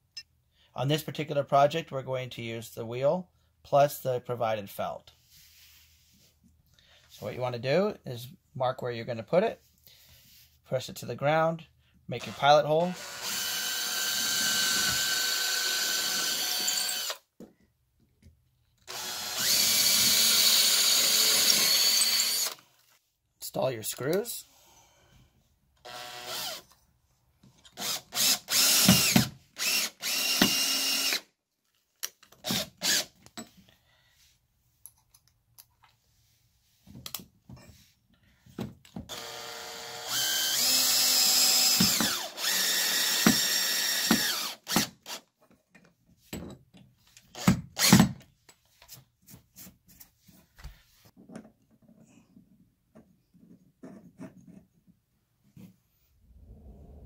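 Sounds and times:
power drill driving screws: 12.2 - 17.2, 18.9 - 22.7, 25.8 - 26.8, 27.8 - 31.3, 32.4 - 33.2, 39.1 - 45.2, 47.3 - 48.2.

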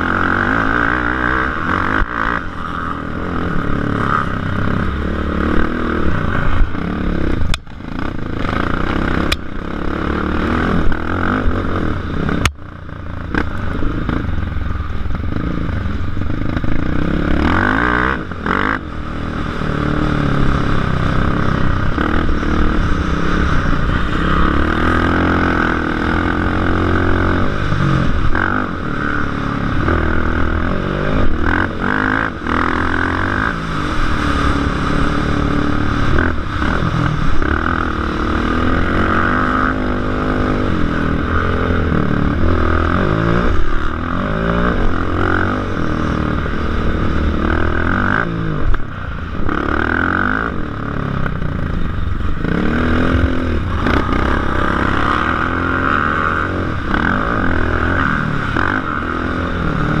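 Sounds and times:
atv engine revving: 0.0 - 60.0.

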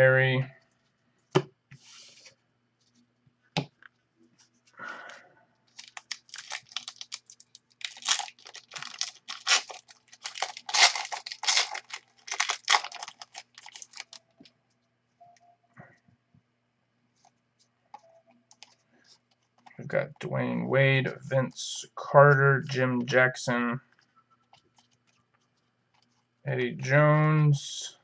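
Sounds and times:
card pack crinkling and snapping: 5.7 - 14.5.

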